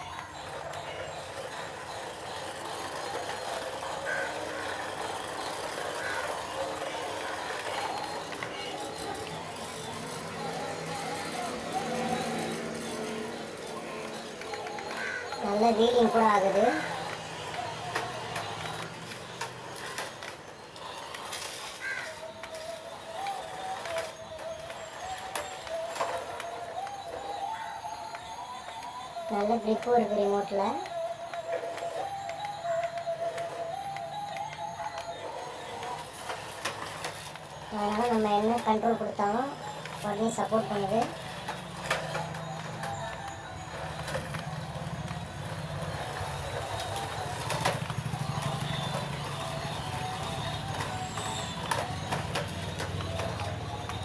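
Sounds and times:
plastic toy car clattering: 0:00.0 - 0:54.0
small electric motor whine: 0:00.0 - 0:54.0
plastic toy car hitting concrete: 0:13.6 - 0:27.0, 0:40.8 - 0:54.0.

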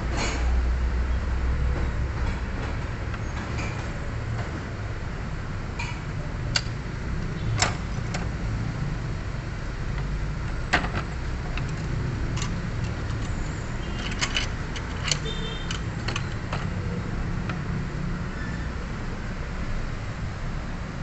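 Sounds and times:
metallic clicks of tools: 0:11.5 - 0:16.7.

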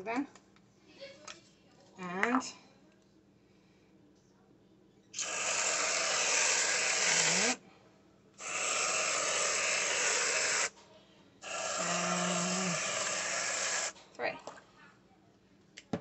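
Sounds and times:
aerosol can hissing: 0:05.2 - 0:07.6, 0:08.4 - 0:10.7, 0:11.4 - 0:14.0.

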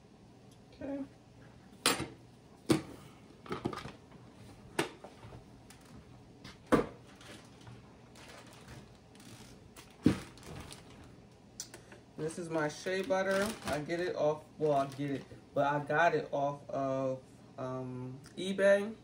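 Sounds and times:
sharp knocks and clunks in kitchen: 0:06.5 - 0:07.0.

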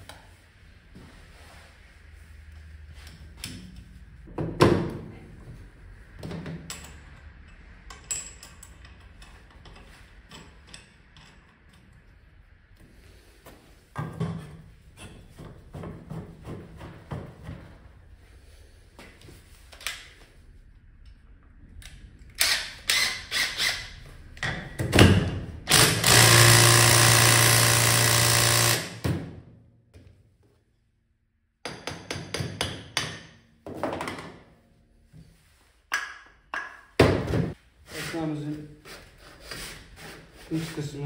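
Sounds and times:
power tool running: 0:25.7 - 0:29.0.

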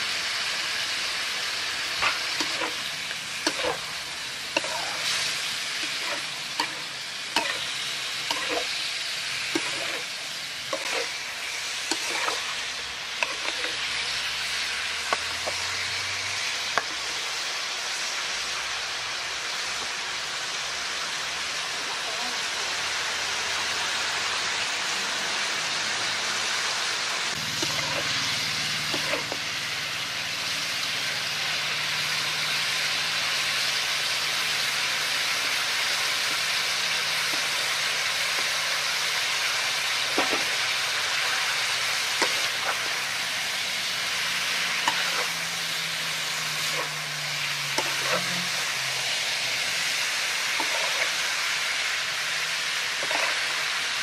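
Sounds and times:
metal spatula scraping wok: 0:00.0 - 0:17.5, 0:27.2 - 0:29.9, 0:31.7 - 0:54.0
food sizzling in a wok: 0:00.0 - 0:54.0.

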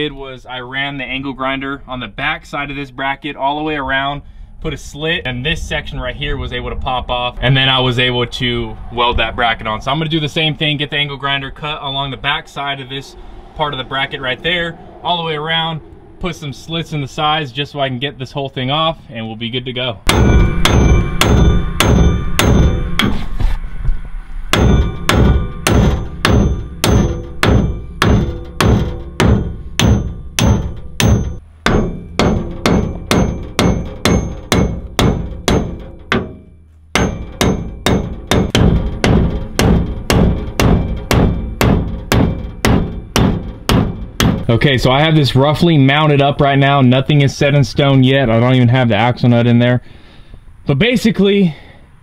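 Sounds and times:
hammer striking steel: 0:20.1 - 0:23.4, 0:24.5 - 0:44.6.

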